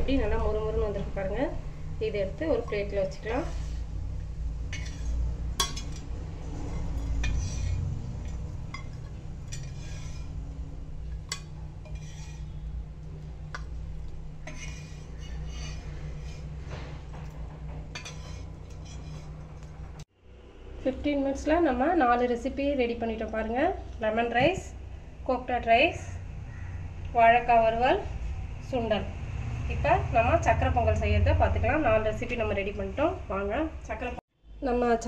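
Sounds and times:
steady low hum: 0:00.0 - 0:35.0
metal utensils clinking on pan: 0:04.7 - 0:06.1, 0:07.0 - 0:10.3, 0:11.3 - 0:12.4, 0:14.4 - 0:16.4, 0:17.9 - 0:19.3.

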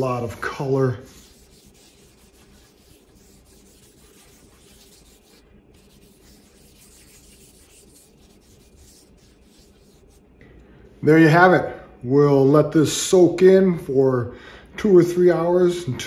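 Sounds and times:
faint steady hum: 0:00.0 - 0:16.0
cloth rubbing wooden board: 0:00.1 - 0:10.2.

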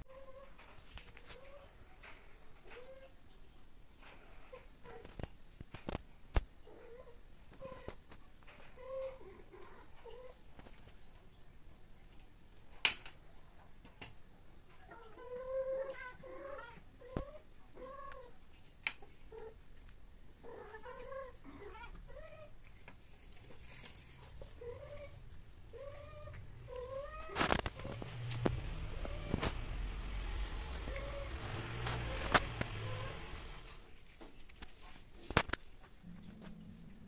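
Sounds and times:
rustling: 0:14.7 - 0:37.0
cats yowling: 0:20.4 - 0:22.6, 0:24.1 - 0:33.8.

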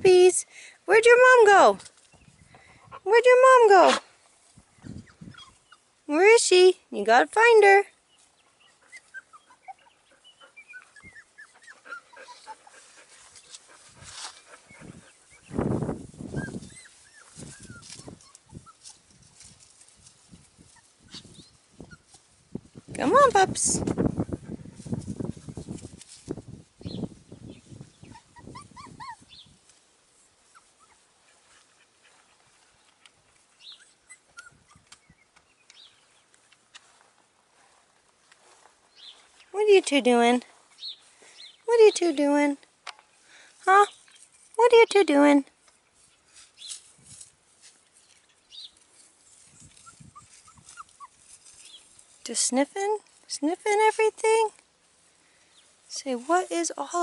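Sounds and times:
rustling in grass: 0:01.5 - 0:57.0
puppies whimpering: 0:04.9 - 0:05.9, 0:08.5 - 0:13.2, 0:16.3 - 0:19.0, 0:28.0 - 0:29.4, 0:33.6 - 0:35.3, 0:49.6 - 0:51.3.

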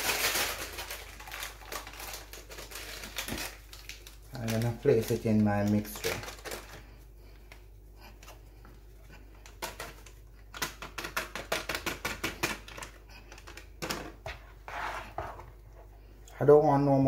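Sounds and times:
fingers tapping plastic sachet: 0:00.4 - 0:06.8, 0:09.4 - 0:14.0.

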